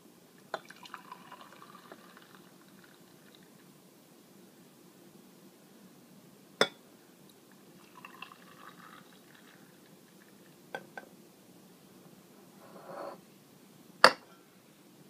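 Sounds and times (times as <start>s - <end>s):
coffee pouring trickle: 0.6s - 3.7s, 7.8s - 10.6s.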